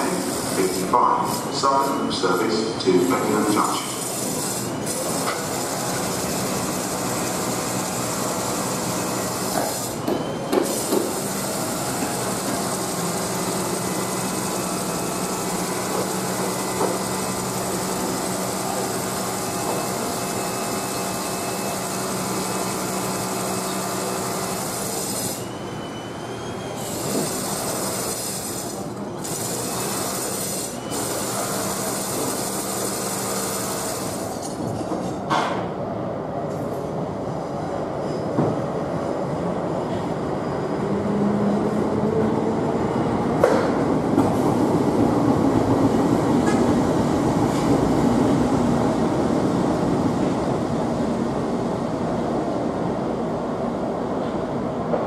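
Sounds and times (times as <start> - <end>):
electric train running on rails: 0.0 - 55.0.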